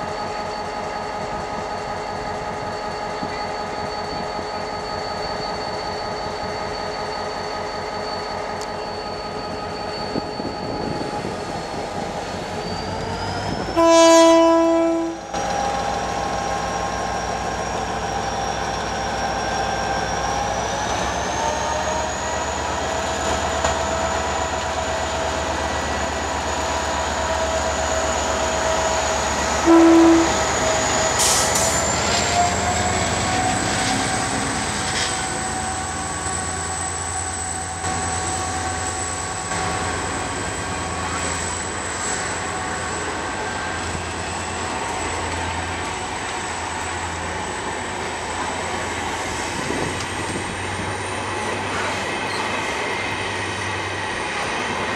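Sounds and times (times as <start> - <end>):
train horn blast: 13.8 - 15.2, 29.6 - 30.4
diesel engine whine: 14.8 - 54.9.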